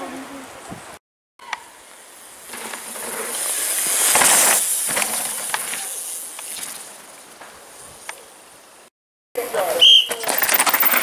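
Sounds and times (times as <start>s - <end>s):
bike tyres hissing over dirt: 1.6s - 9.8s.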